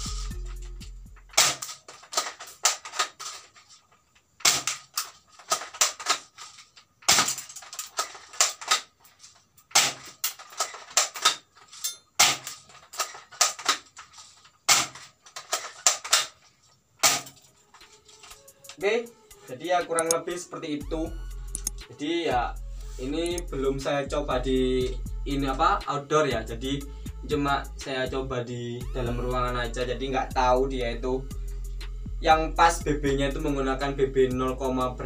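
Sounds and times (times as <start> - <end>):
airsoft rifle plastic clicks: 1.3 - 18.8, 19.9 - 20.2, 21.6 - 21.8.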